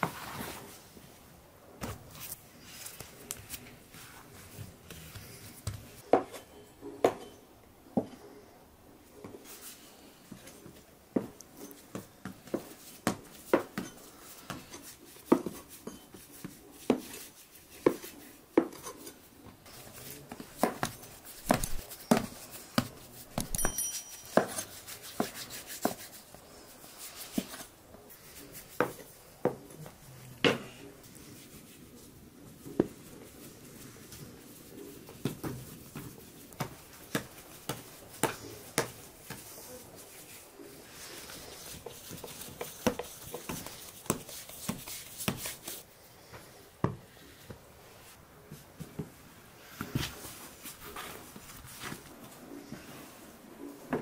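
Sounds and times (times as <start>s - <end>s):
hands kneading dough: 9.0s - 54.0s
short ringing clink: 23.5s - 24.4s.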